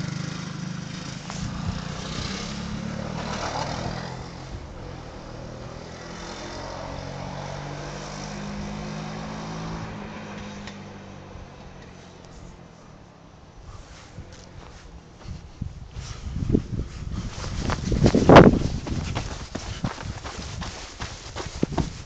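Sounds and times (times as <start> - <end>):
small atv engine revving: 0.0 - 10.7.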